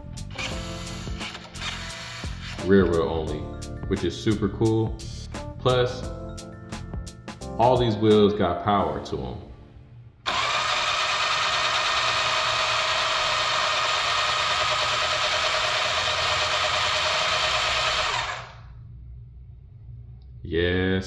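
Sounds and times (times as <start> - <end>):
toy truck motor whirring: 0.3 - 2.6, 10.3 - 18.6.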